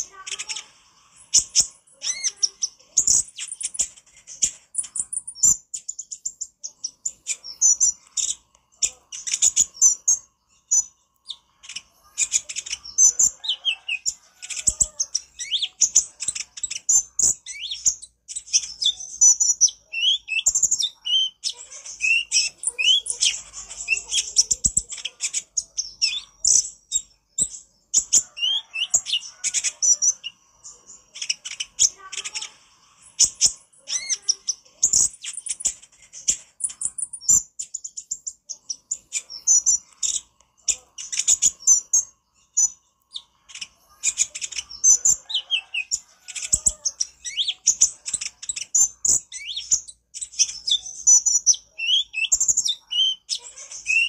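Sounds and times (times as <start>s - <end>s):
sunbird singing chattering song: 4.8s - 27.2s, 36.6s - 54.0s.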